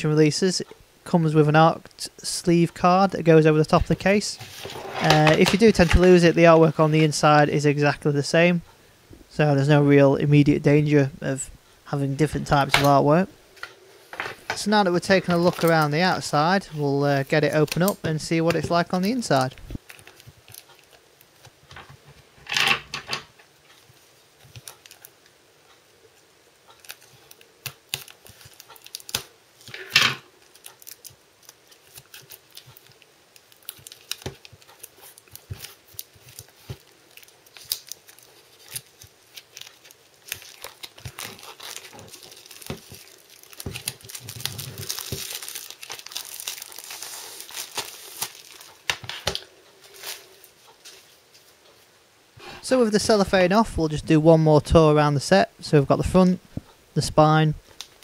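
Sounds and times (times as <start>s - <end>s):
cellophane wrap crinkling: 14.8s - 21.6s, 23.7s - 25.2s, 26.6s - 51.4s.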